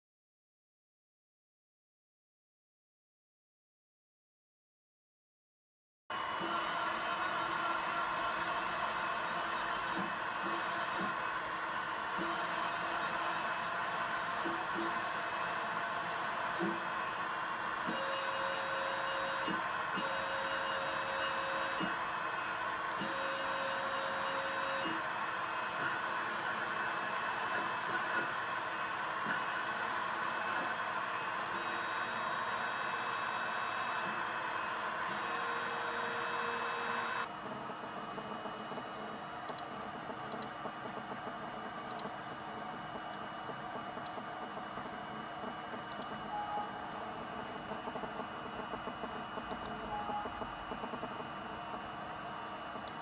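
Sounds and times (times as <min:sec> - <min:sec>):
steady hum: 0:06.2 - 0:40.6
stepper motors whining: 0:06.3 - 0:37.3
computer mouse clicking: 0:12.1 - 0:13.5, 0:16.5 - 0:16.8, 0:24.8 - 0:28.5, 0:31.4 - 0:34.2, 0:39.5 - 0:41.2, 0:41.9 - 0:42.1, 0:45.8 - 0:46.2, 0:47.7 - 0:51.2
stepper motor click: 0:12.1 - 0:16.8, 0:17.8 - 0:18.1, 0:18.9 - 0:20.2, 0:21.2 - 0:22.0, 0:22.9 - 0:23.2, 0:23.9 - 0:37.3.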